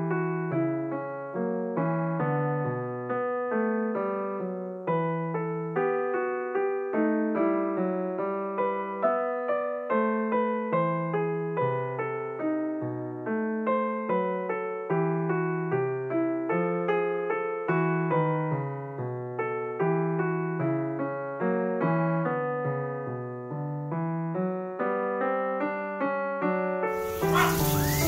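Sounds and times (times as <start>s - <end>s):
piano music: 26.9s - 28.0s.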